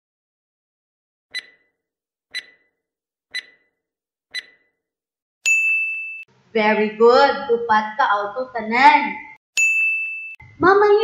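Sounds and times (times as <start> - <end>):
clock ticks: 1.3 - 2.7, 3.3 - 3.7, 4.3 - 4.7
bright ding: 5.4 - 6.3, 9.6 - 10.5.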